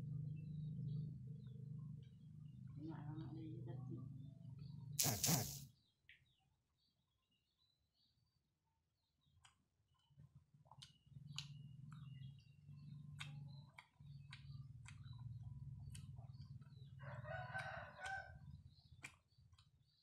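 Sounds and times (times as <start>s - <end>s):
sharp clicks: 5.0s - 5.6s
rooster crowing: 17.0s - 18.4s.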